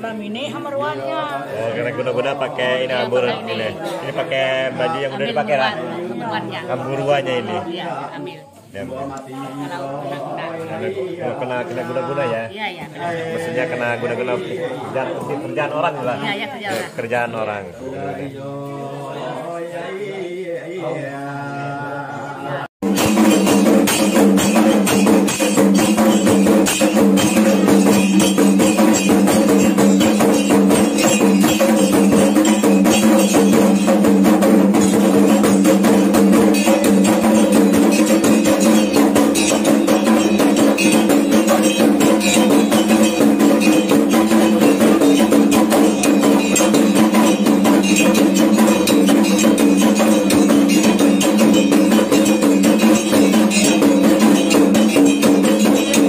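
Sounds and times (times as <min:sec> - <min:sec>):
hand drums beaten fast: 0:22.8 - 0:56.0
steady ringing tone: 0:23.2 - 0:56.0.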